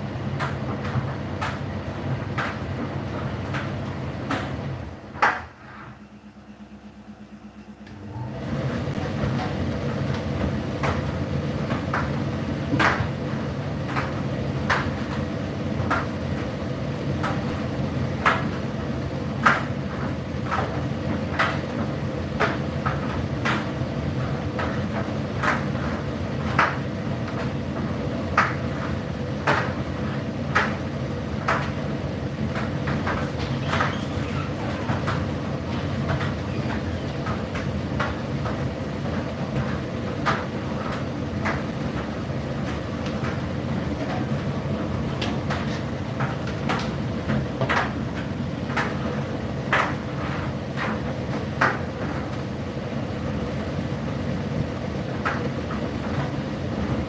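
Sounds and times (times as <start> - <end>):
tumble dryer running: 0.0 - 57.0
loud dryer click: 0.3 - 5.7, 7.5 - 16.6, 19.3 - 52.5.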